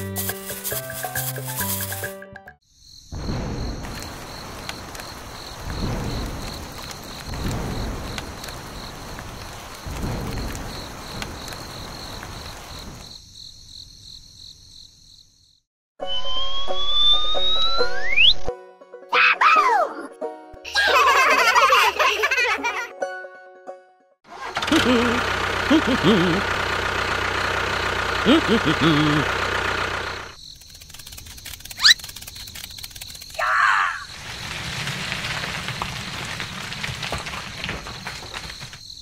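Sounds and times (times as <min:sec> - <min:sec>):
crickets chirping: 0:02.6 - 0:15.6, 0:27.2 - 0:39.0
thunder rumbles: 0:03.1 - 0:13.1, 0:34.0 - 0:38.8
steady rain: 0:03.8 - 0:13.1, 0:34.0 - 0:38.8
high-pitched childlike giggling: 0:20.7 - 0:22.9, 0:24.6 - 0:26.5, 0:28.3 - 0:29.3.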